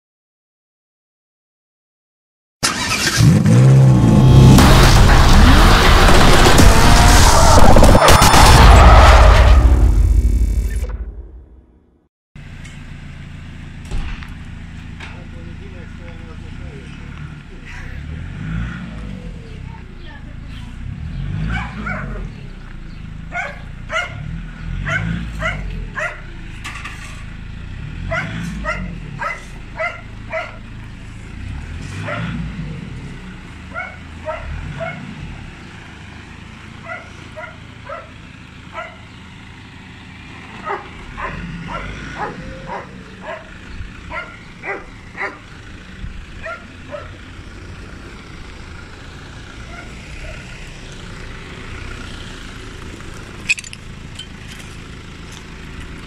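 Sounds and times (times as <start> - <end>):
suv engine running low: 18.9 - 56.0
dog barking: 21.5 - 22.3, 23.3 - 26.3, 28.1 - 30.6, 32.0 - 32.4, 33.7 - 35.1, 36.8 - 39.1, 40.6 - 45.4, 46.4 - 47.2, 49.7 - 50.5.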